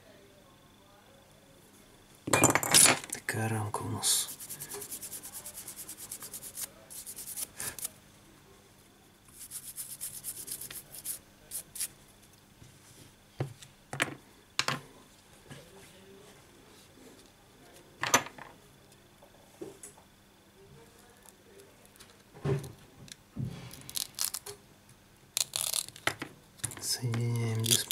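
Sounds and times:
toothbrush scrubbing plastic: 0:04.3 - 0:07.9, 0:09.3 - 0:11.9.

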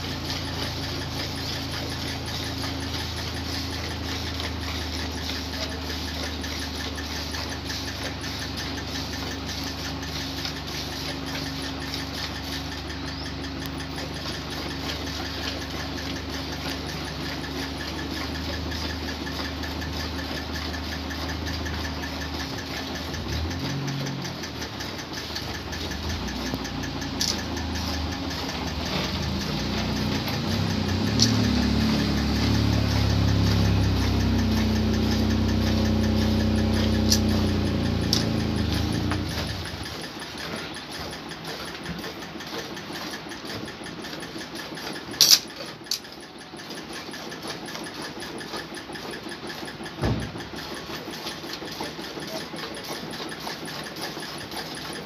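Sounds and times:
engine humming: 0:09.7 - 0:39.9.

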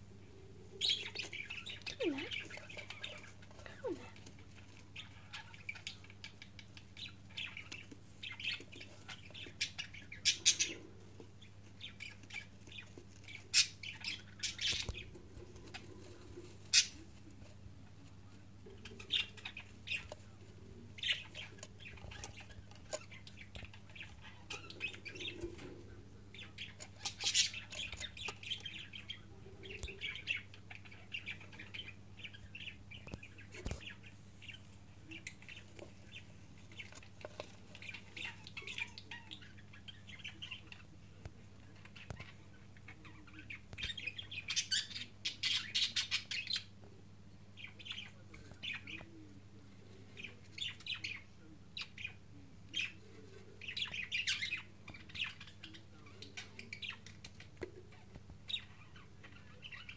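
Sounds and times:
faint low hum: 0:00.0 - 0:59.9
budgerigars chirping: 0:04.9 - 0:15.8, 0:26.4 - 0:40.9, 0:41.7 - 0:46.7, 0:53.6 - 0:59.9.

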